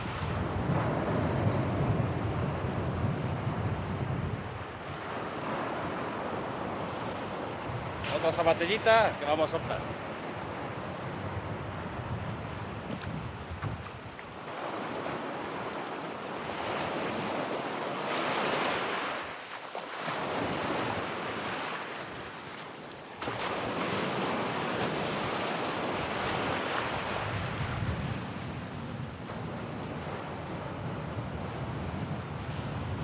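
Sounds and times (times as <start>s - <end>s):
surf breaking on beach: 0.0s - 33.0s
wind buffeting microphone: 0.0s - 33.0s.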